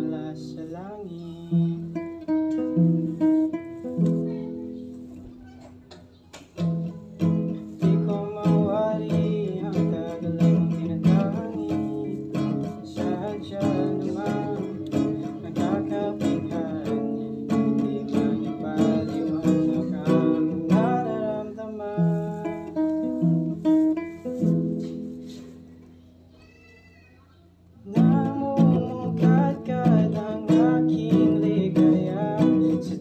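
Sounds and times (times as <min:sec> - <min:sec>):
acoustic guitar strumming: 0:00.0 - 0:26.0, 0:27.8 - 0:33.0
person singing: 0:07.2 - 0:23.7, 0:27.8 - 0:33.0.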